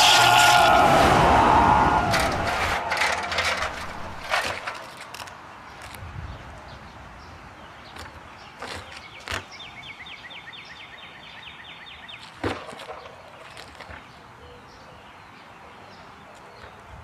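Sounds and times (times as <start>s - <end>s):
bird singing a fast trill: 7.6s - 12.3s.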